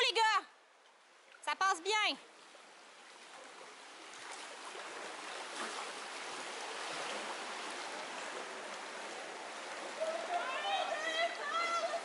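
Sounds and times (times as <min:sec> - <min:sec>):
river water rushing: 0:02.2 - 0:12.0.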